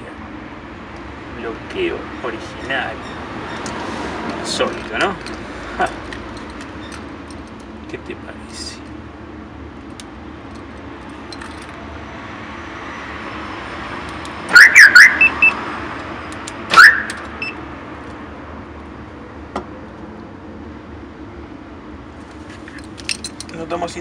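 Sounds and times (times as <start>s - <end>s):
car alarm siren chirps: 14.5s - 15.6s, 16.7s - 17.6s.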